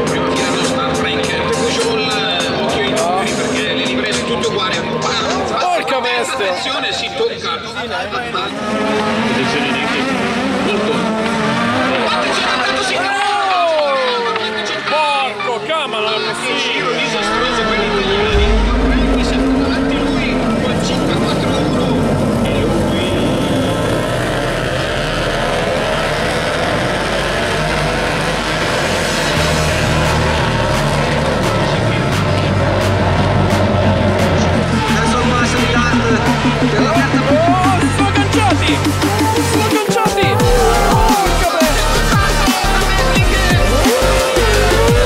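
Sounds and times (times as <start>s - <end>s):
racing car engines revving: 0.0s - 5.6s, 7.6s - 45.0s
electronic music with heavy bass: 17.0s - 45.0s
falling bass sweeps: 17.1s - 26.7s.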